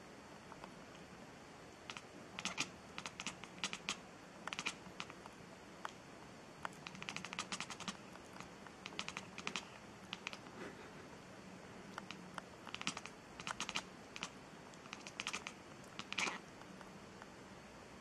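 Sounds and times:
cat chattering: 0:01.8 - 0:05.2, 0:06.8 - 0:10.5, 0:12.0 - 0:16.4.

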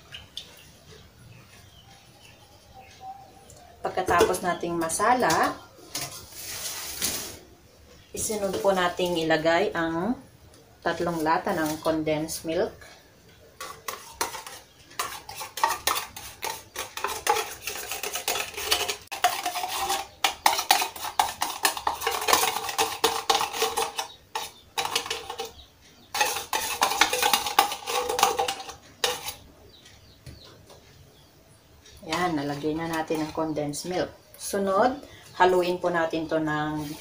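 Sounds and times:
whisk scraping inside tin cans: 0:03.9 - 0:07.4, 0:08.2 - 0:09.5, 0:10.9 - 0:12.4, 0:13.6 - 0:29.5, 0:32.0 - 0:34.6.

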